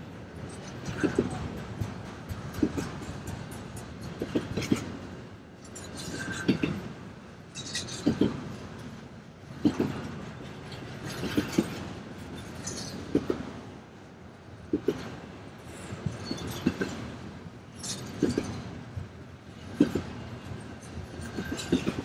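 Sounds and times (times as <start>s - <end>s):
train rumble: 0.0s - 22.0s
train wheels knocking over rail joint: 0.8s - 5.0s.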